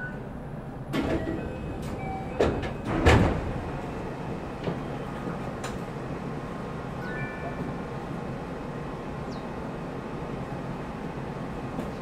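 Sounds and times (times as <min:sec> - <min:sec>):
train hum: 0:00.0 - 0:12.0
knocks and clunks: 0:00.9 - 0:03.6.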